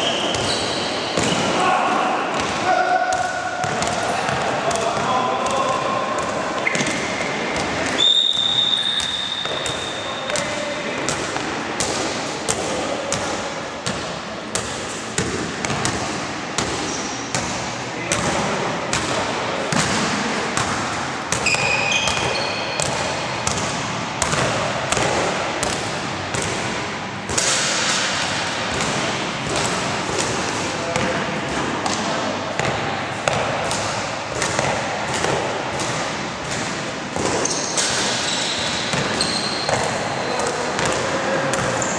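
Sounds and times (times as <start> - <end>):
short high squeaks: 0.0 - 1.0, 21.4 - 22.8, 37.4 - 40.4
players' voices echoing: 0.0 - 41.9
basketball bouncing on court: 2.3 - 41.9.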